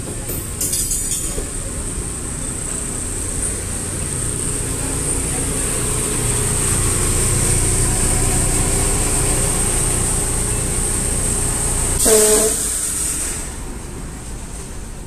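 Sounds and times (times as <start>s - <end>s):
train rumbling to a stop: 0.0s - 15.0s
high-pitched hiss: 12.0s - 13.6s.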